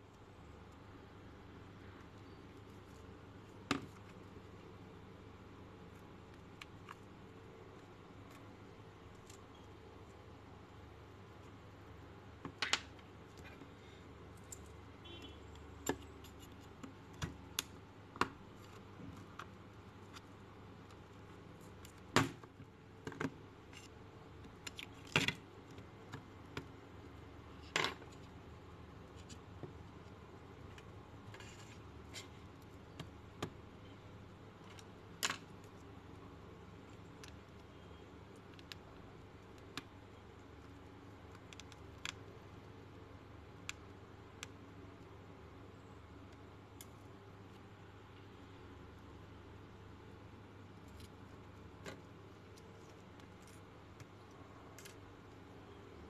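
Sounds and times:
low steady hum: 0:00.0 - 0:56.0
small clicks taps and scrapes: 0:12.4 - 0:26.8, 0:29.0 - 0:33.6, 0:34.6 - 0:43.0, 0:50.6 - 0:55.5.

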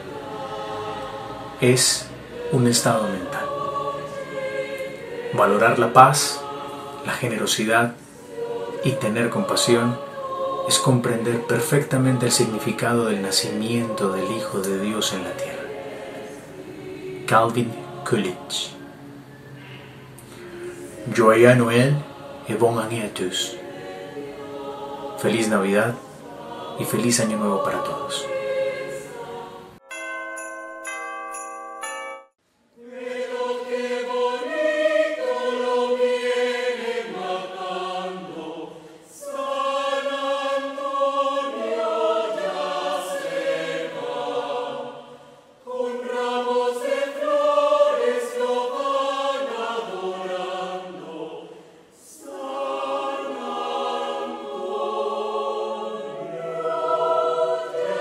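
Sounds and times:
choir singing: 0:00.0 - 0:30.2, 0:32.7 - 0:58.0
bell-like chimes: 0:29.8 - 0:32.4.

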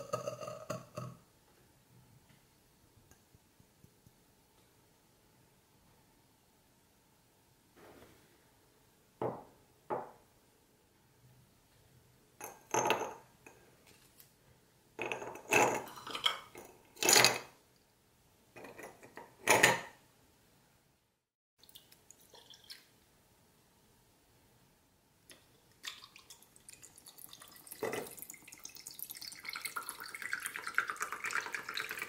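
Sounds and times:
glass knocked on wooden table: 0:09.2 - 0:10.2
liquid pouring over ice: 0:21.6 - 0:22.9, 0:25.8 - 0:32.0.

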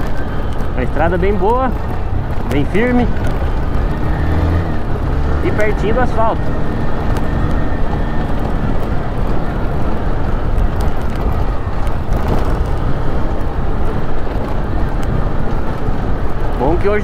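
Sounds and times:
motorcycle engine running: 0:00.0 - 0:17.0
wind rumble on microphone: 0:00.0 - 0:17.0.

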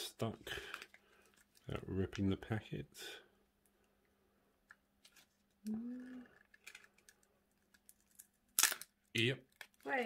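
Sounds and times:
person humming: 0:05.7 - 0:06.3.

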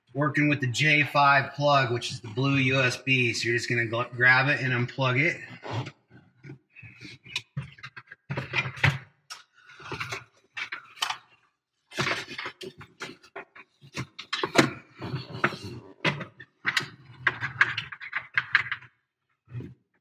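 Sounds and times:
plastic clicks and rattles: 0:12.0 - 0:18.9.

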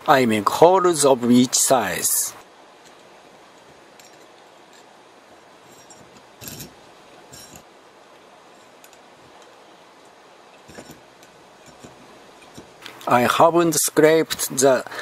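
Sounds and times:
hand drill scraping metal: 0:05.6 - 0:07.7, 0:10.6 - 0:12.8.

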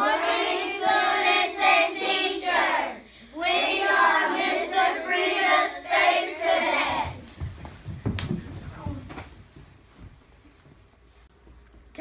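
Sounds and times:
children singing in unison: 0:00.0 - 0:07.4.

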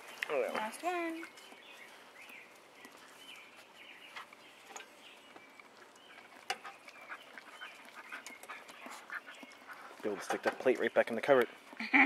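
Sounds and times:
faint birds chirping: 0:00.0 - 0:12.0
dog licking a plate: 0:05.6 - 0:11.8.

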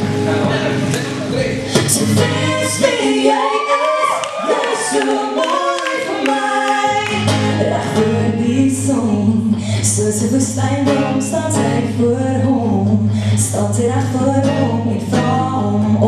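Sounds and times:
low bass line: 0:00.0 - 0:02.8
acoustic guitar: 0:00.0 - 0:16.0
woman singing: 0:01.7 - 0:16.0.

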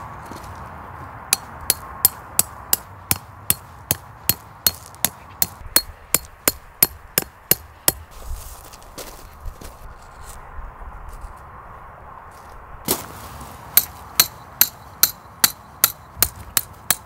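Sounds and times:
hammer striking: 0:01.3 - 0:08.0, 0:13.8 - 0:17.0.

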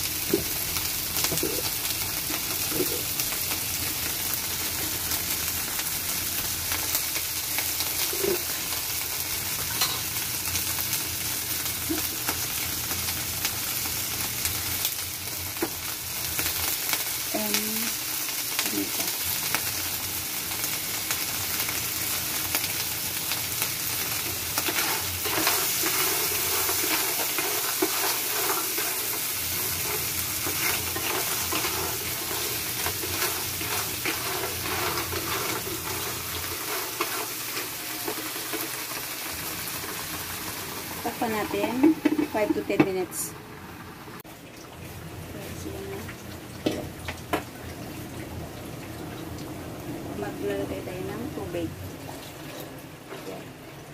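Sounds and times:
clams sizzling in hot oil: 0:00.0 - 0:44.3
wooden spatula stirring: 0:24.7 - 0:38.2.

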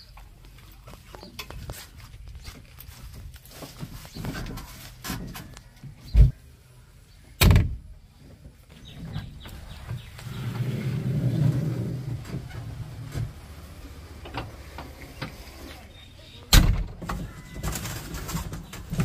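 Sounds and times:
heavy machine engine rumbling: 0:08.8 - 0:19.0.

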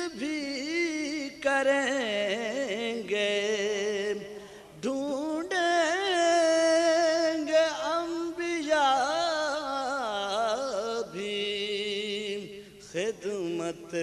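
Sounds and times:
man singing: 0:00.0 - 0:14.0
singer breathing: 0:04.3 - 0:04.8, 0:12.5 - 0:12.9.

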